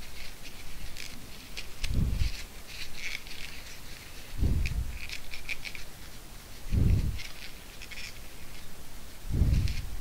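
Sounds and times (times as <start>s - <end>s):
dull handling thump: 4.4s - 5.0s, 9.3s - 9.9s.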